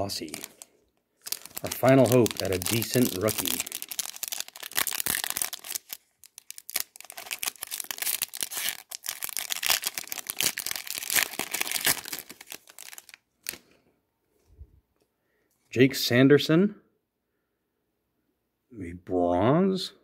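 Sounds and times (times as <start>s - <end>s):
foil wrapper crinkling and tearing: 0.0s - 13.6s.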